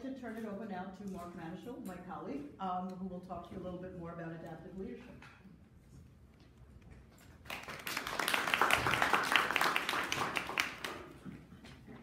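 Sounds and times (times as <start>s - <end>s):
small group applauding: 7.2s - 11.5s.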